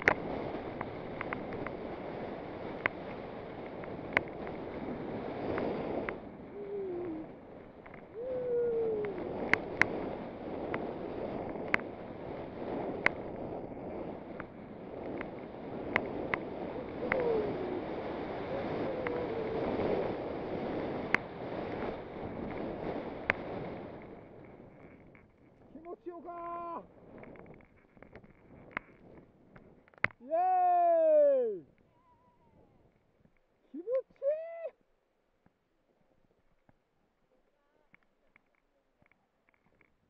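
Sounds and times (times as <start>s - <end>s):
snowboard sliding through snow: 0.0s - 31.6s
wind on microphone: 0.0s - 34.7s.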